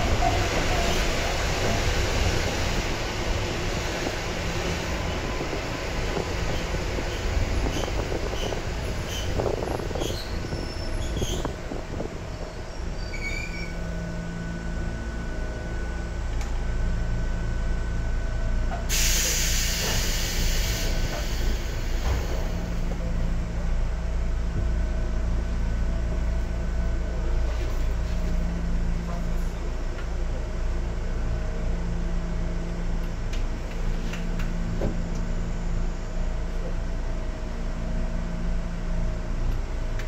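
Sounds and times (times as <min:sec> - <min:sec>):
loud hiss: 0:18.9 - 0:22.6.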